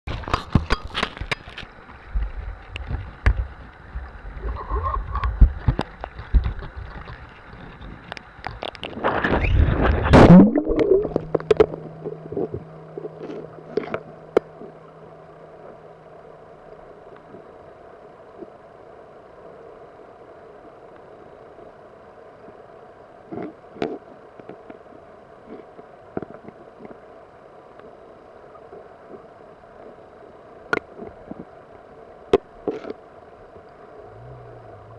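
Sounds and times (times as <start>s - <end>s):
gurgling rush of water: 0.1s - 15.9s
muffled underwater flowing water: 0.1s - 34.9s.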